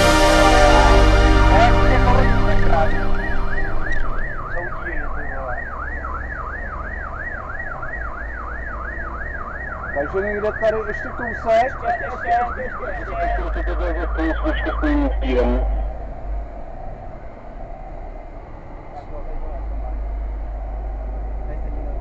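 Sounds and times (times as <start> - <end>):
fire engine siren yelping: 0.0 - 16.3
low warbling siren: 0.0 - 22.0
truck engine rumble: 0.0 - 22.0.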